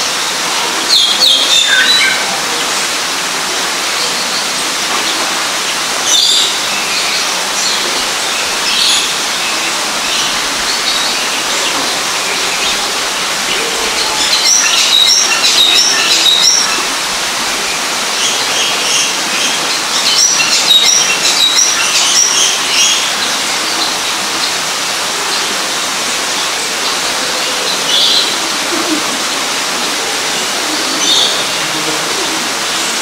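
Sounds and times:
small birds chirping: 6.1s - 24.6s.

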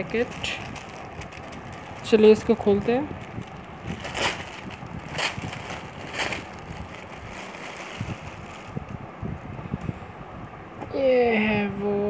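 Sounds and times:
plastic packet crinkling: 0.0s - 9.0s.

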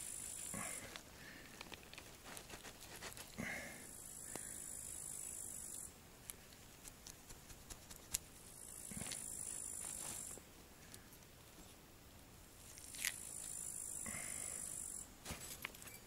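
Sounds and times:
insects chirring: 0.0s - 1.4s, 3.3s - 6.0s, 8.4s - 10.4s, 12.6s - 15.1s.

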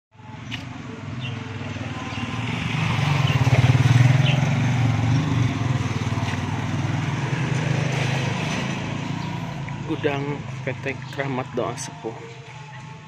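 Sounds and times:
motorcycle riding past: 1.1s - 11.1s.

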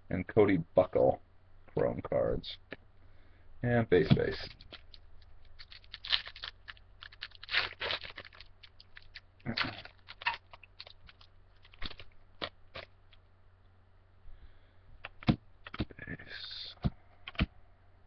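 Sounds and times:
foil wrapper crinkling and tearing: 4.3s - 13.2s.

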